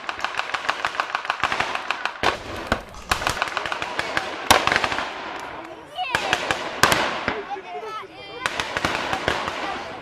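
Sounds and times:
rapid blank gunfire: 0:00.0 - 0:05.4, 0:08.4 - 0:10.0.

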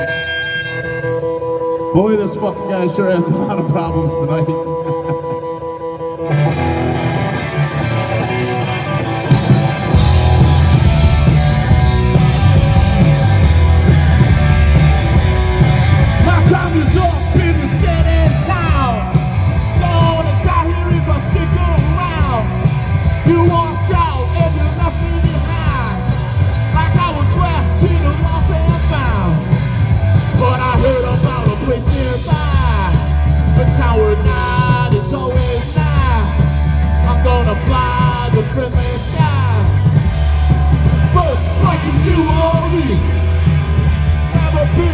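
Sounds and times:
heavy metal band playing: 0:00.0 - 0:44.9
person yelling vocals: 0:16.2 - 0:22.6.

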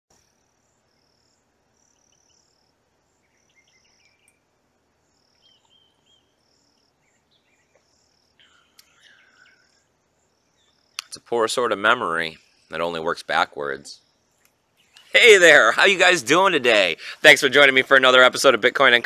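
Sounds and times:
bird chirps: 0:00.2 - 0:13.0, 0:13.9 - 0:15.2
insect chirping: 0:00.2 - 0:19.0.

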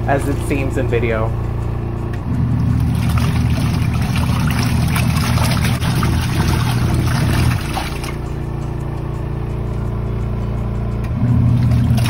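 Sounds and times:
washing machine motor hum: 0:00.0 - 0:12.0
water swishing and sloshing: 0:02.5 - 0:08.4, 0:11.2 - 0:12.0.

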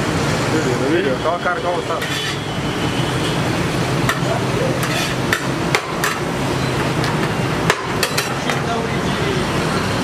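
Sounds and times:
metal spoon scraping steel tray: 0:01.9 - 0:02.5, 0:04.0 - 0:06.3
sharp knocks: 0:05.3 - 0:06.2, 0:07.0 - 0:08.3.

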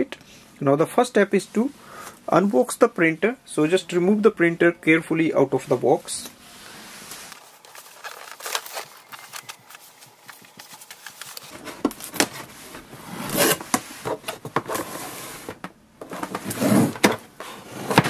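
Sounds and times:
cardboard box scraping and knocking: 0:11.5 - 0:18.0.

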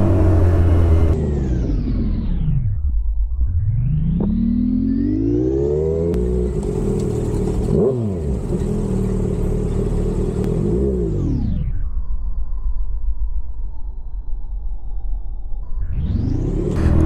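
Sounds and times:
motorcycle engine revving: 0:00.0 - 0:02.4, 0:04.0 - 0:11.4, 0:16.3 - 0:17.0.

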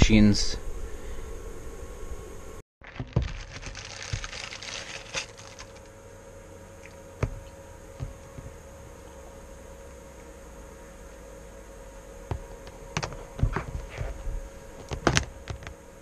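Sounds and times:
test cable and metal clips rattling: 0:02.8 - 0:05.9.

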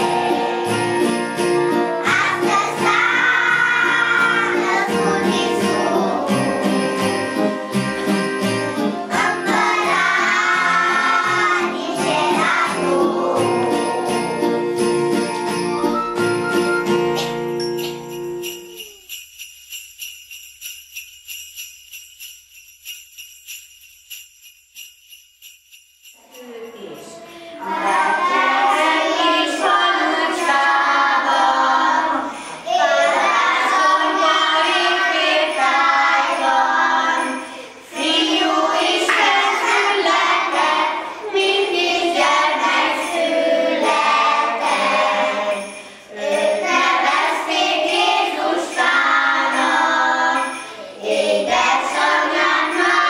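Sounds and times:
children singing a carol: 0:00.0 - 0:07.8, 0:08.7 - 0:14.6, 0:27.4 - 0:53.0
sleigh bells shaking in rhythm: 0:00.0 - 0:53.0.

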